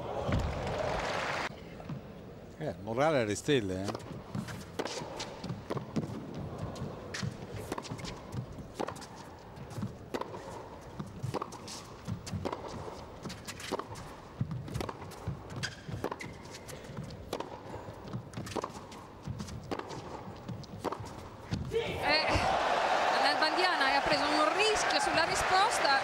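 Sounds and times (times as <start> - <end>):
tennis ball bouncing: 3.8 - 6.2, 6.8 - 22.5
racket striking tennis ball: 9.8 - 21.7.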